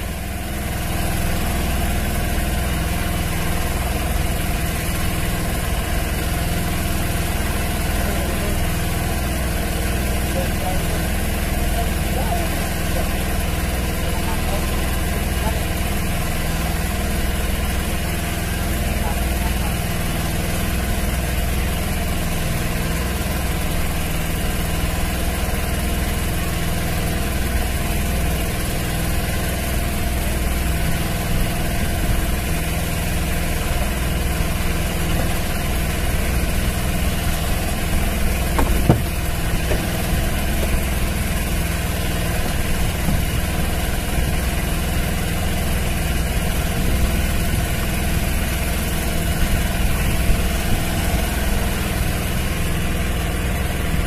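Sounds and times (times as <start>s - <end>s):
boat engine idling: 0.0s - 54.0s
sharp knock: 38.6s - 40.8s.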